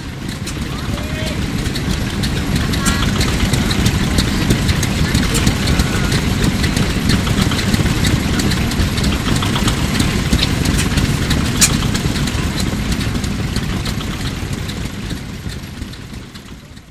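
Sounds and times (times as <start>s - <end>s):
crane engine running: 0.0s - 16.9s.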